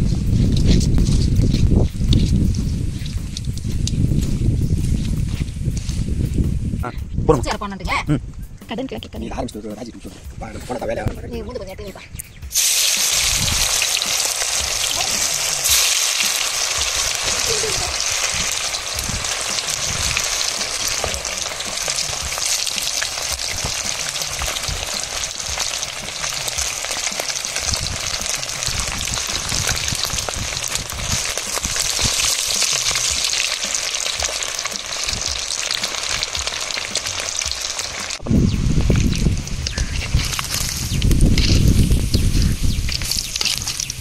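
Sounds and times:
fish frying in hot oil: 12.5 - 44.0.

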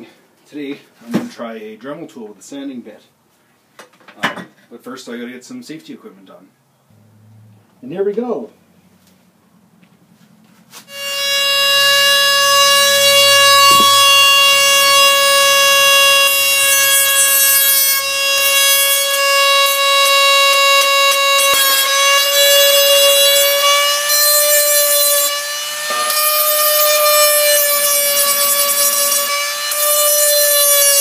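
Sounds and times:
rotary tool grinding glass: 10.9 - 31.0.

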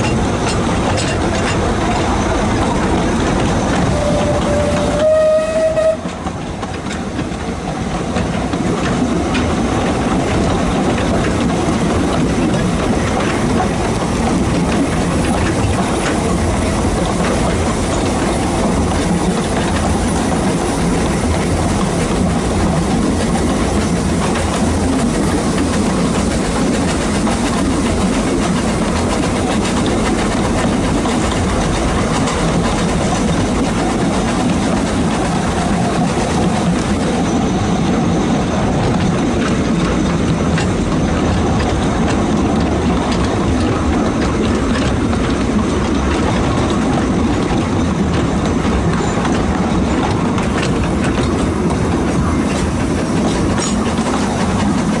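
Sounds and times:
train carriages rumbling on track: 0.0 - 55.0
steam whistle: 3.8 - 6.2.

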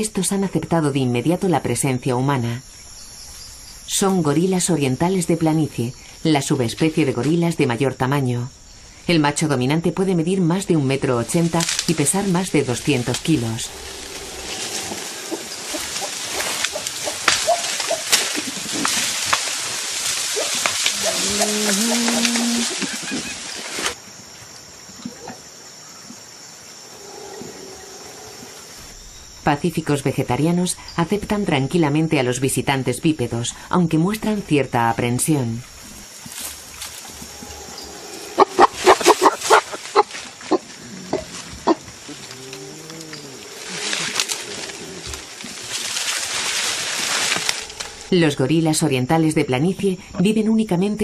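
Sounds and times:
leafy rustling: 10.8 - 24.3, 35.6 - 48.3
twigs snapping: 11.5 - 12.2, 14.2 - 23.0, 42.1 - 48.1
low wavering gorilla call: 13.6 - 18.1, 20.4 - 23.5, 37.2 - 45.1
gorillas grunting: 13.6 - 19.0, 20.2 - 23.9, 37.1 - 45.4.

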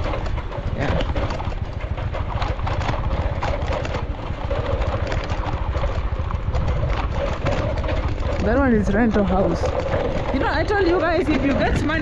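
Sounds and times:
car engine rumble: 0.0 - 12.0
road noise: 0.0 - 12.0.

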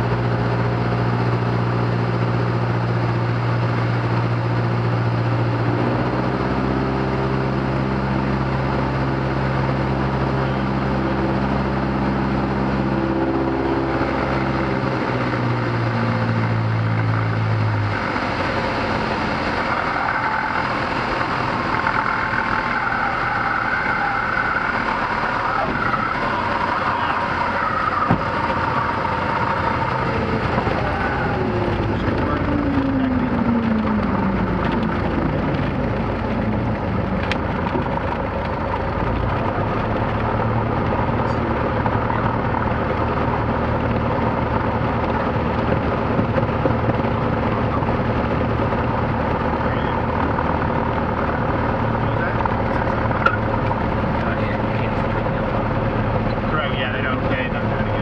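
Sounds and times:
light airplane engine and propeller: 0.0 - 58.0.

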